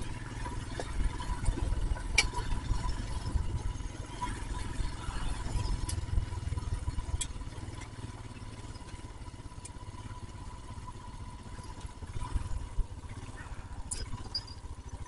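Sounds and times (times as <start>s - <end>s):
wind rumble: 0.0s - 7.3s
motorcycle engine running: 0.0s - 15.0s.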